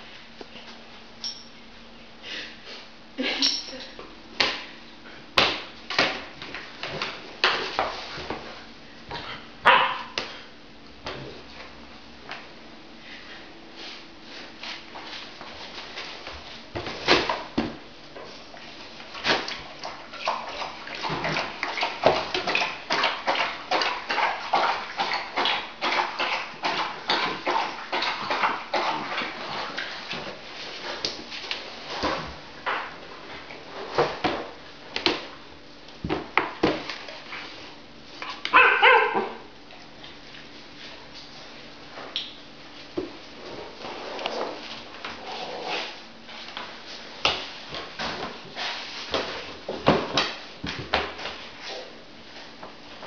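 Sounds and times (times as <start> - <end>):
dog yelp: 9.6 - 10.2, 38.5 - 39.4.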